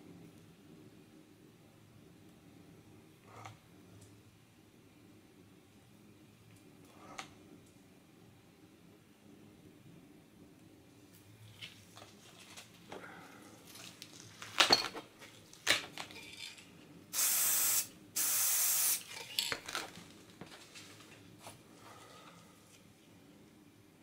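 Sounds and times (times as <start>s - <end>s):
spray paint can hissing: 17.1s - 19.1s.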